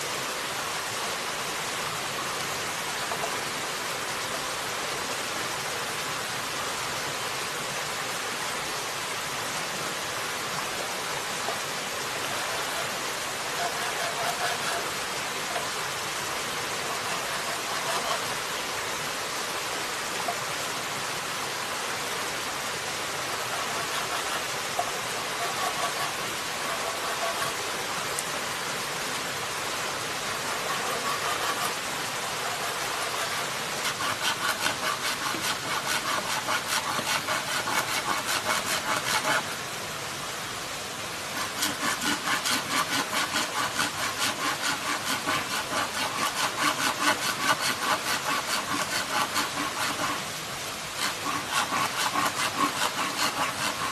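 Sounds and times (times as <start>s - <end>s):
rushing hiss: 0.0s - 53.9s
knife sawing bamboo: 12.1s - 18.6s, 23.2s - 27.8s, 30.1s - 39.7s, 41.3s - 53.9s
blade scraping bamboo: 12.2s - 15.8s, 16.7s - 18.4s, 23.3s - 27.7s, 30.2s - 39.6s, 41.3s - 53.9s.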